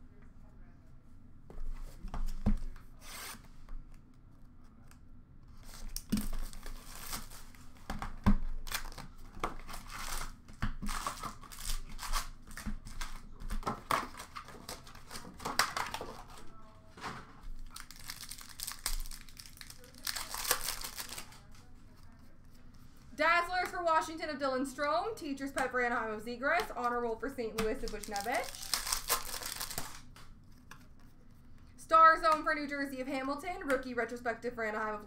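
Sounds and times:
wrappers crinkling and rustling: 5.6 - 7.9, 8.5 - 16.7, 17.3 - 22.1, 27.7 - 31.0.

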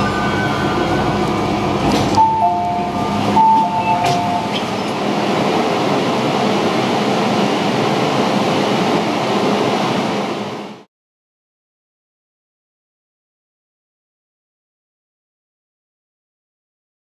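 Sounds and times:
train hum: 0.0 - 10.9.

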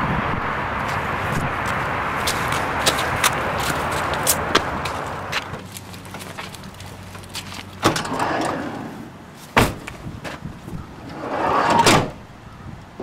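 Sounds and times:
rush of noise: 0.0 - 5.3
car door slamming: 9.6 - 10.4
car door thud: 9.6 - 10.4.

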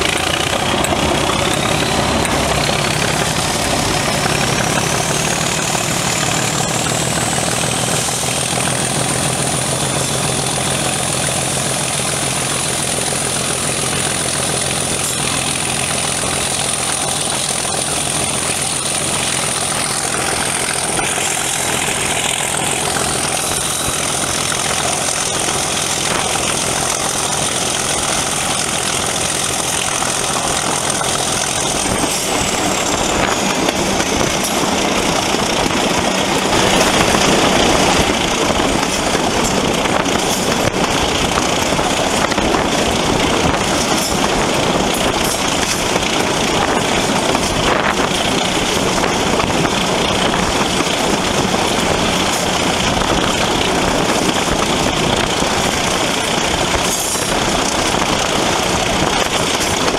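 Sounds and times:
diesel locomotive engine working: 0.0 - 59.9.

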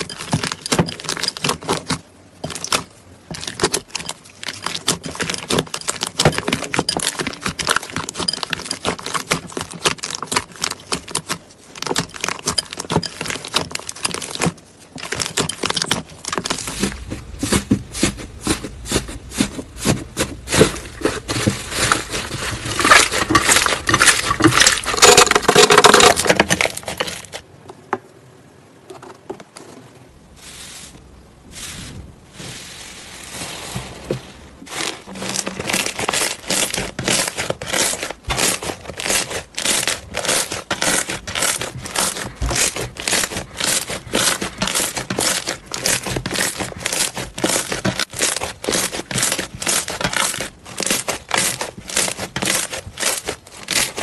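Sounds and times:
slime crackling and popping: 34.7 - 54.0.

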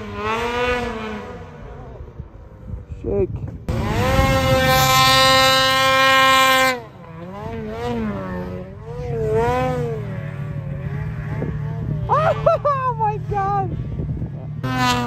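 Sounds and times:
snowmobile engine revving: 0.0 - 2.8, 3.6 - 15.0.

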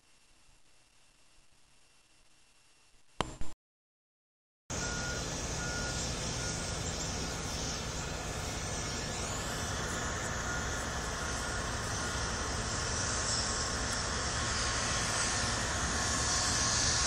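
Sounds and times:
faint rising whine: 4.7 - 17.0
low vehicle rumble with hiss: 4.7 - 17.0.

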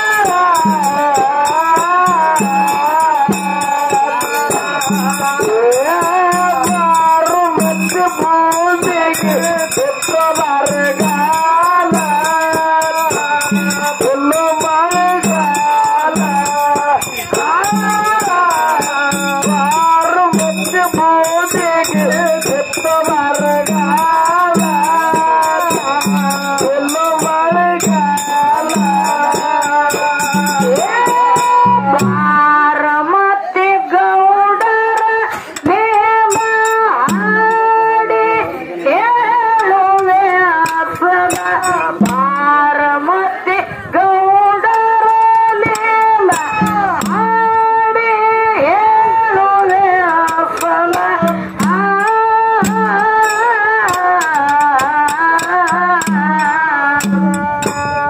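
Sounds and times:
hand cymbals jingling: 0.0 - 32.5, 34.6 - 43.1, 44.4 - 58.0
person singing folk melody: 0.0 - 58.0
barrel drum beating: 49.7 - 58.0.

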